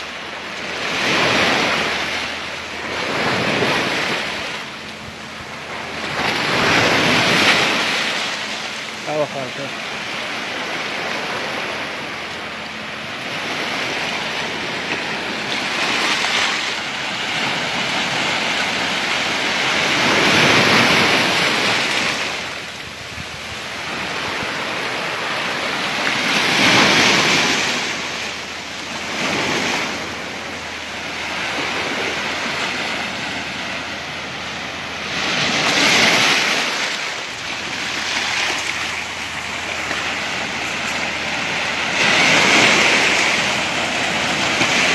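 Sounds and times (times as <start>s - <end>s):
sea surf breaking on shore: 0.0s - 44.9s.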